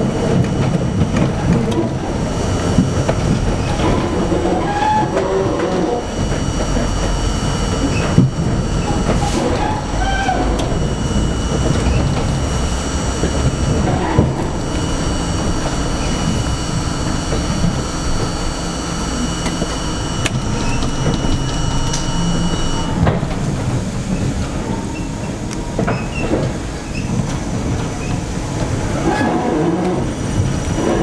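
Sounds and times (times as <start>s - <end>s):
high steady whine: 0.0s - 31.0s
subway train rumble: 0.0s - 31.0s.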